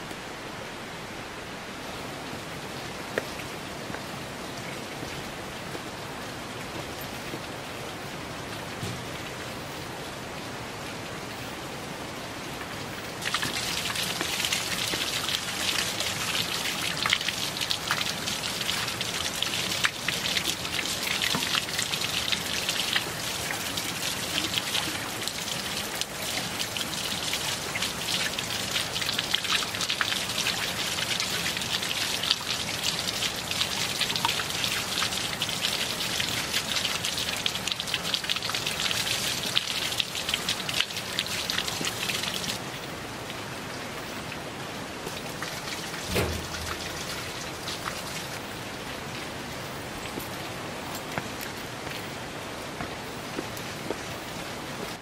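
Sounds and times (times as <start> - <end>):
water splashing onto wet stone: 45.4 - 48.3.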